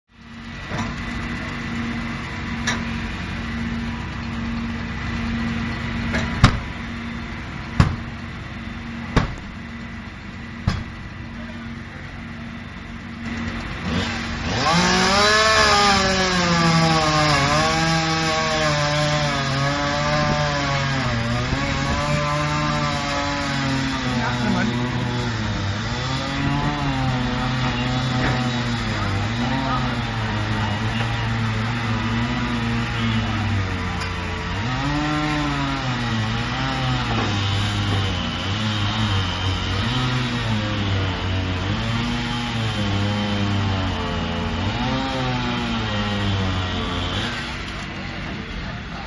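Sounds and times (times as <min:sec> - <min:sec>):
fire engine idling: 0:00.1 - 0:34.6, 0:46.0 - 0:49.0
engine revving loudly: 0:13.3 - 0:47.7.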